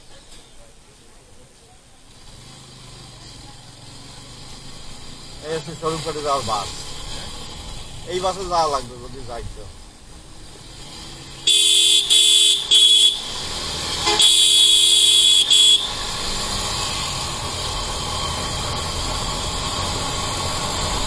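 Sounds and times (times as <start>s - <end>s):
motorcycle road noise: 0.0s - 21.0s
two-note vehicle horn honking: 11.5s - 13.3s, 14.0s - 16.0s.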